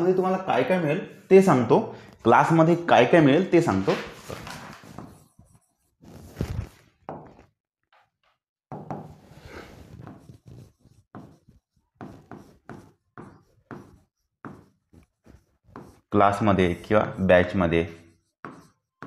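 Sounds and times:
pen tapping on whiteboard screen: 8.7s - 9.2s, 11.1s - 16.0s, 18.4s - 19.0s.

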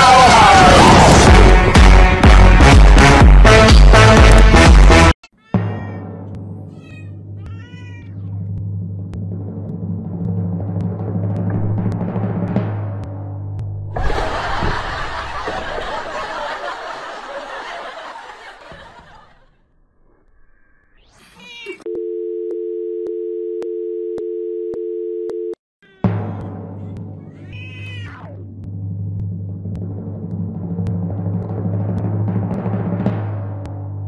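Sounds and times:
drum-heavy music: 0.0s - 16.6s, 26.0s - 34.0s.

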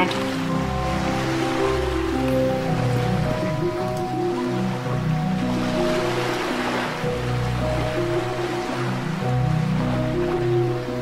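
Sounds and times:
ocean waves: 0.0s - 11.0s.

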